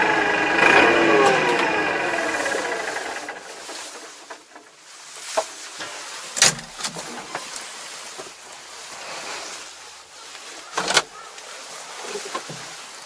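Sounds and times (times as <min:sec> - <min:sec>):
cab door clicking and knocking: 0:06.4 - 0:07.0.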